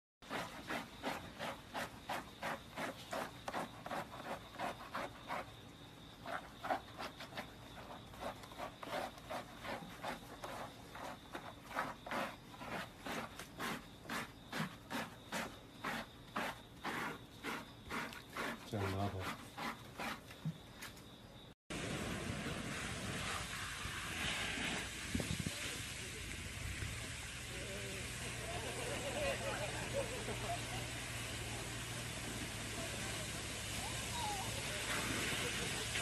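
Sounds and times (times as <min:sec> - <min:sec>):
brushes scrubbing wet fur: 0:00.2 - 0:20.4.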